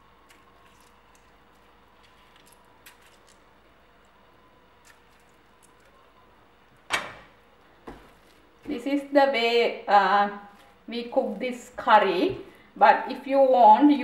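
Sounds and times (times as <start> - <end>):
lemon squeezing squelches: 0.0 - 6.3.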